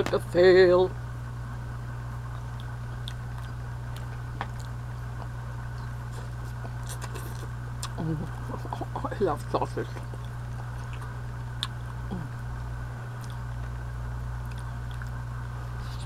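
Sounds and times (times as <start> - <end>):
steady low hum: 0.0 - 16.0
person chewing: 2.2 - 9.0, 9.9 - 13.8, 14.4 - 16.0.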